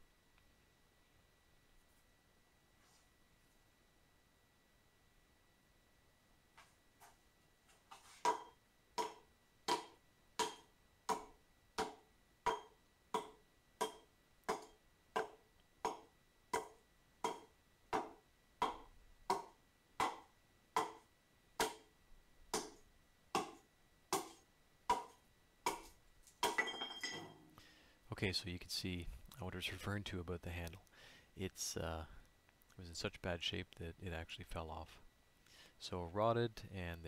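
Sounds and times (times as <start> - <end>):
hatchet chopping into log: 8.2 - 21.0, 21.6 - 21.9, 22.5 - 22.8, 23.4 - 26.6.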